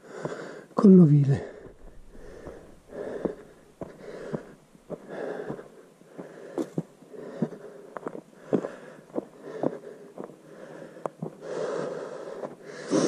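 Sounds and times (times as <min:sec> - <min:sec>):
person breathing hard: 0:00.0 - 0:00.8, 0:01.4 - 0:13.0
footsteps: 0:01.4 - 0:10.4.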